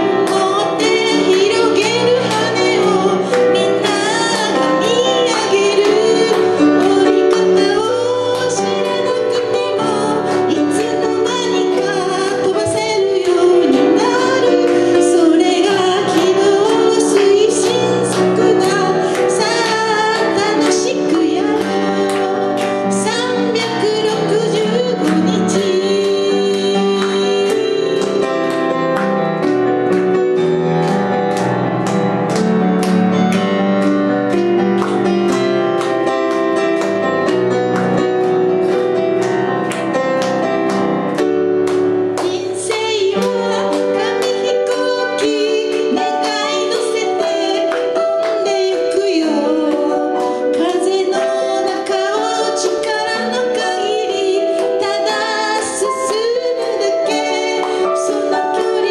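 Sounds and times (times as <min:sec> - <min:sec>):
woman singing: 0:00.0 - 0:28.9, 0:42.2 - 0:58.9
digital piano playing: 0:00.0 - 0:58.9.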